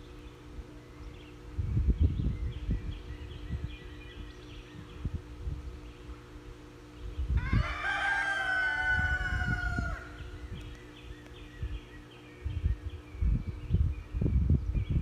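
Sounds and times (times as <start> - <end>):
rooster crowing: 7.4 - 10.3.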